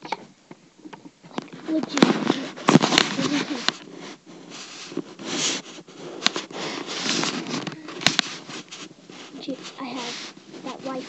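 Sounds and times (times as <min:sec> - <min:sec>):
camera handling rustling: 0:01.4 - 0:03.9, 0:04.9 - 0:11.0.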